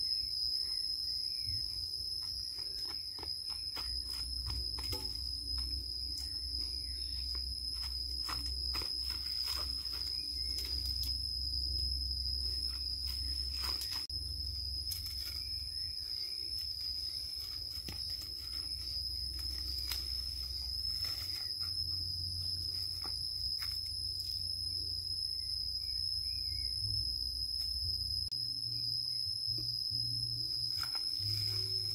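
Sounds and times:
insects droning: 0.0 - 31.9
clicks and rustles of twigs: 12.6 - 14.1, 14.8 - 24.4.

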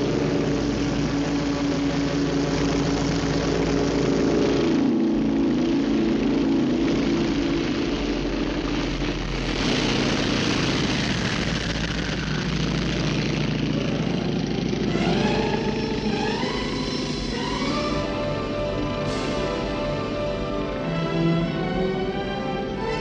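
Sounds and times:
radial aircraft engine at full throttle: 0.0 - 23.0.

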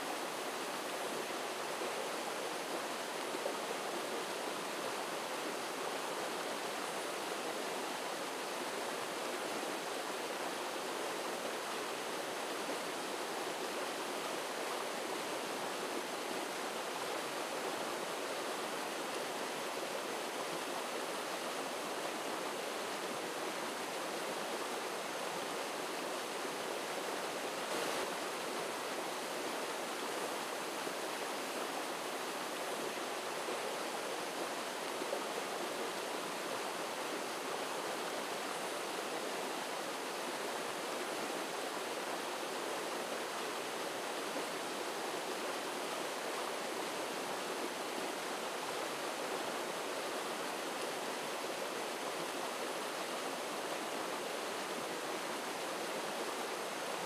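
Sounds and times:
stream flowing over stones: 0.0 - 57.0.

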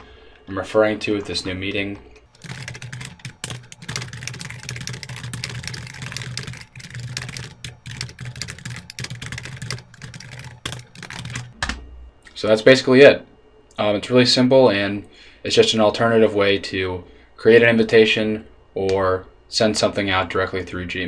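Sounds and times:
fast keyboard typing: 2.2 - 11.6.

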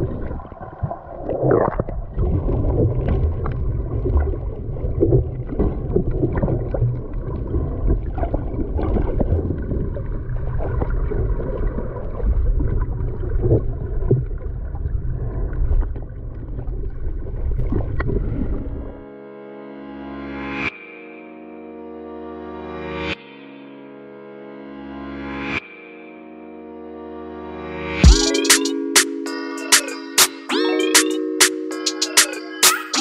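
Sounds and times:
underwater churning rumble: 0.0 - 18.9.

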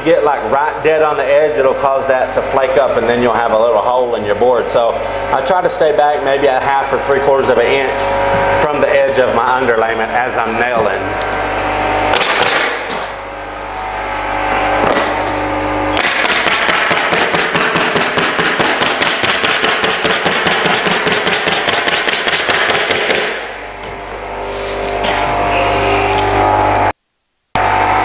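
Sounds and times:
low hum: 0.0 - 17.8, 23.3 - 28.0
stapler firing into wood: 12.1 - 13.1, 16.0 - 23.5.

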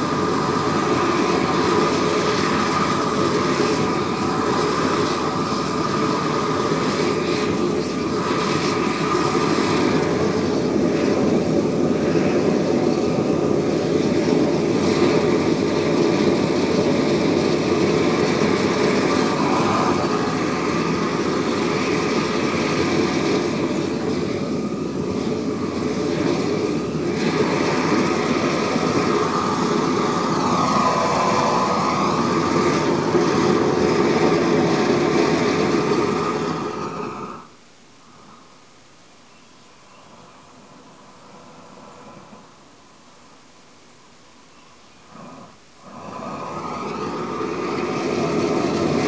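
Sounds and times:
torch flame rushing: 0.0 - 38.4, 45.1 - 49.0.

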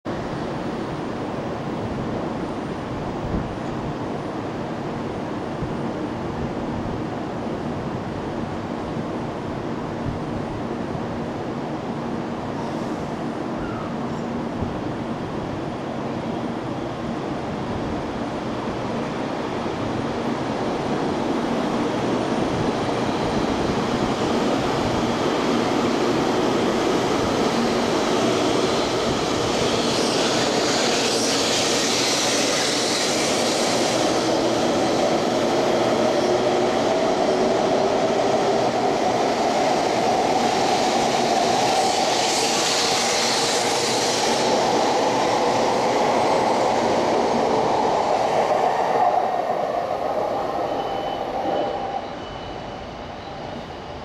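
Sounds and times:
electric train accelerating past: 0.2 - 54.0
train hissing: 18.7 - 54.0.

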